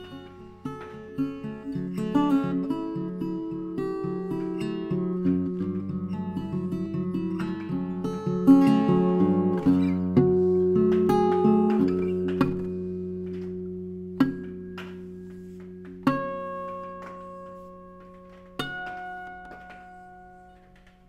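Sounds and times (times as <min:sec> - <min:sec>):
fingerpicked acoustic guitar: 0:00.0 - 0:21.0.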